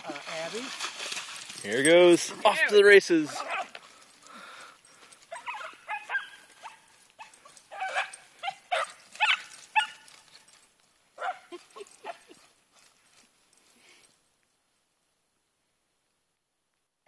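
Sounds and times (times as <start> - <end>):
dog yipping and barking: 3.4 - 3.7, 5.3 - 10.1, 11.2 - 12.4.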